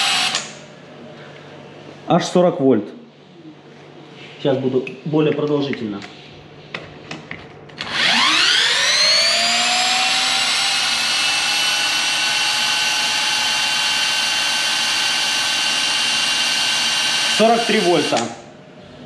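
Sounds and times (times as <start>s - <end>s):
electric motor high whine: 7.8s - 18.2s.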